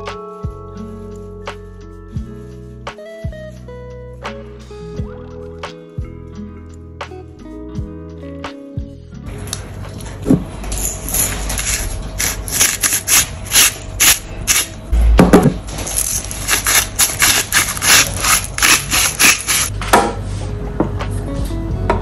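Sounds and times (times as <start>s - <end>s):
pepper mill grinding: 10.7s - 14.8s, 15.7s - 19.7s
heavy thump: 15.0s - 15.7s.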